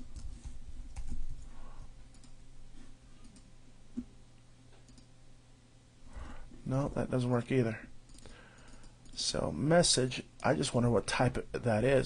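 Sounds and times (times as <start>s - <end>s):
low steady hum: 0.0s - 12.0s
keyboard and mouse clicks: 2.1s - 2.4s, 4.8s - 5.1s, 8.1s - 9.2s.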